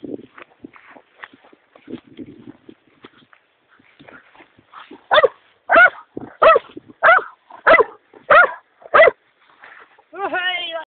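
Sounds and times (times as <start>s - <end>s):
dog barking: 5.1s - 9.2s.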